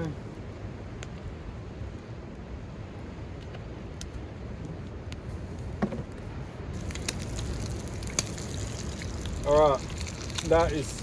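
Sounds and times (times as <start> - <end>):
campfire crackling: 0.0 - 2.0, 2.6 - 11.0
oil sizzling in a frying pan: 6.8 - 11.0.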